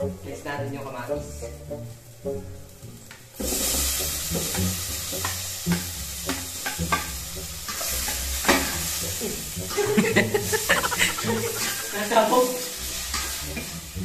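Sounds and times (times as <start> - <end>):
food sizzling in hot oil: 0.0 - 14.0
metal utensil scraping a pot: 5.2 - 8.8.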